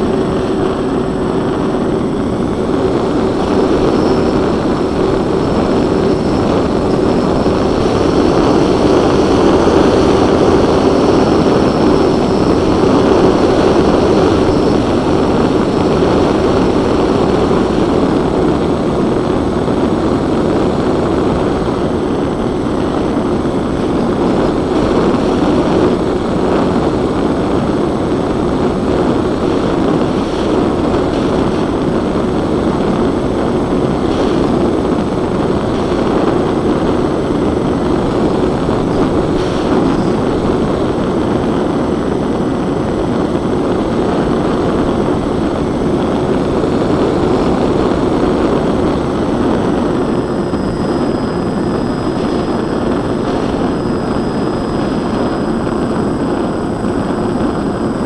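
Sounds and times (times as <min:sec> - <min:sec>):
propellers droning: 0:00.0 - 0:58.0
rush of air: 0:00.0 - 0:58.0.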